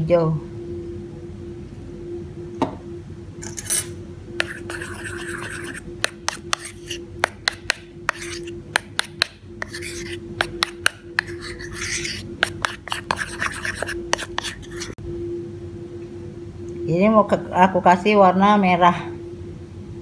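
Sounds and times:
spoon scraping batter: 4.4 - 15.0.

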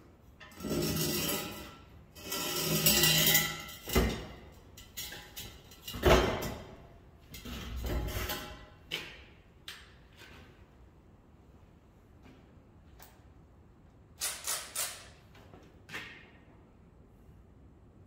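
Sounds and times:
metal pipe scraping and clanking: 0.3 - 9.1.

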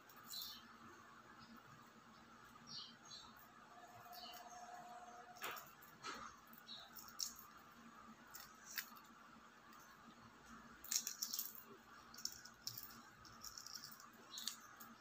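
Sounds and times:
egg shell crackling: 3.9 - 15.0.

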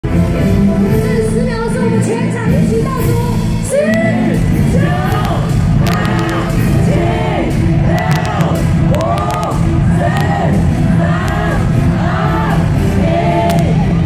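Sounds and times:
loud music: 0.0 - 14.0
crowd shouting in unison: 4.7 - 14.0.

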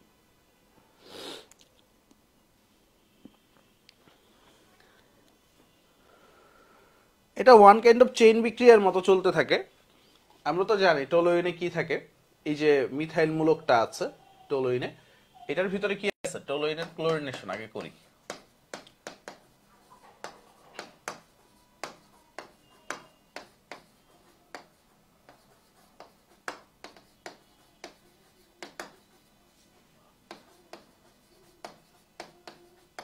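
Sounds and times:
marker tapping on a whiteboard: 16.7 - 19.6, 20.2 - 29.2, 30.3 - 33.0.

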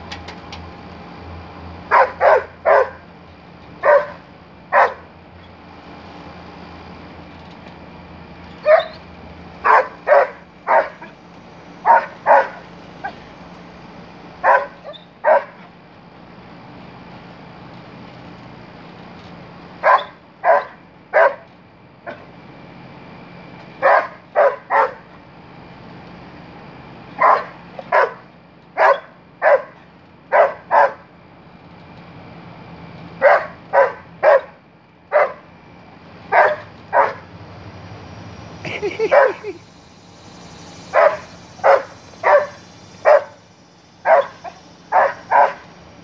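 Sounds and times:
dog barking: 1.9 - 3.0, 3.8 - 5.0, 8.6 - 9.0, 9.6 - 11.1, 11.8 - 13.2, 14.4 - 15.6, 19.8 - 21.4, 23.8 - 25.1, 27.2 - 28.2, 28.8 - 31.0, 33.2 - 35.4, 36.3 - 37.2, 39.0 - 39.5, 40.9 - 43.4, 44.0 - 45.7.

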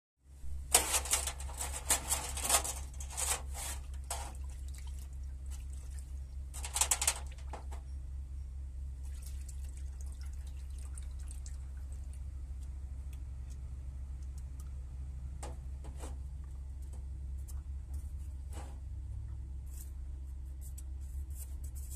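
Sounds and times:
steady low hum: 0.3 - 21.9
small metal parts clicking: 0.7 - 4.3, 6.6 - 7.4.

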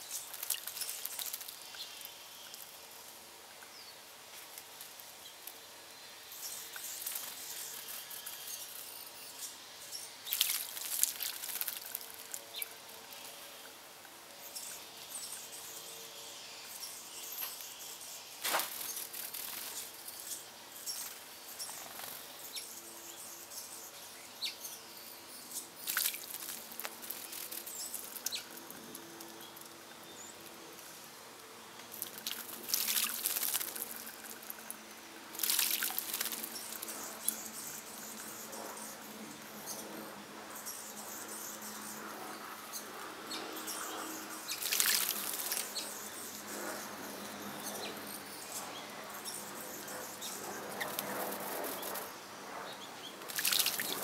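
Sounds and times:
birds splashing in water: 10.3 - 12.4, 25.8 - 27.4, 32.0 - 34.4, 35.4 - 36.6, 44.5 - 45.7, 53.3 - 54.0.

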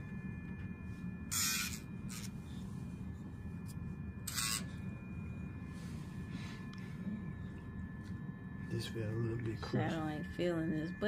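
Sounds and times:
nail grinder humming and whining: 1.3 - 2.3, 4.2 - 4.8.

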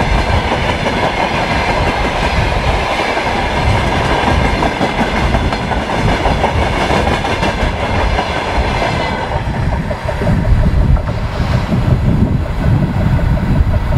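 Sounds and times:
train wheels clattering over rail joints: 0.0 - 13.9
low rumble: 9.3 - 13.9.

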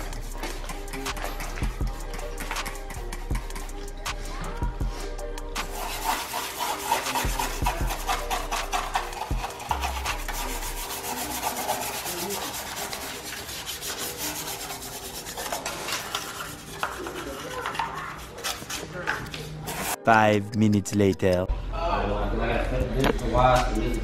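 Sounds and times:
hand scrubbing plastic: 5.7 - 19.0.

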